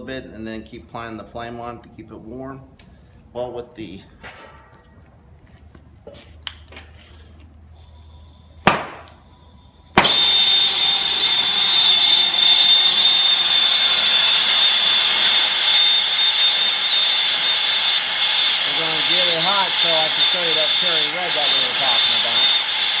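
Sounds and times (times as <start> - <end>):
faint gas hiss: 7.1 - 10.0
sharp pop: 8.6 - 9.2, 10.0 - 10.3
thin high whistle: 9.1 - 22.6
torch igniter click: 10.0 - 10.2
torch flame whoosh and roar: 10.0 - 23.0.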